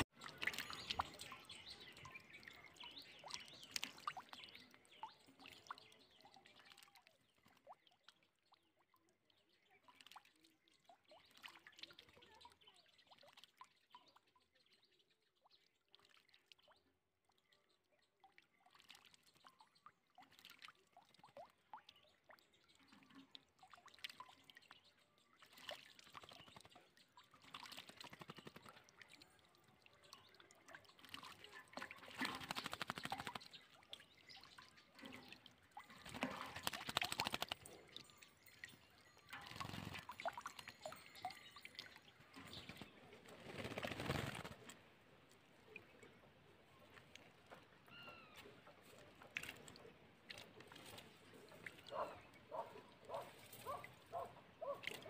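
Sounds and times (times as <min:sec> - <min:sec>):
water splashing in metal bucket: 0:00.0 - 0:07.9, 0:25.4 - 0:44.8
bird flapping wings: 0:32.2 - 0:33.5, 0:36.0 - 0:37.7, 0:42.6 - 0:44.8.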